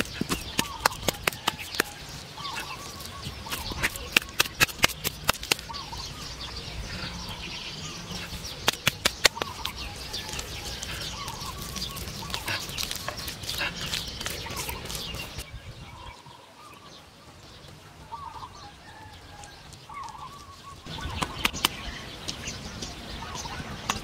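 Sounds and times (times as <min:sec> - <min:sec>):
small birds chirping: 0:00.0 - 0:24.0
sharp clicks: 0:08.6 - 0:11.0, 0:21.0 - 0:22.4.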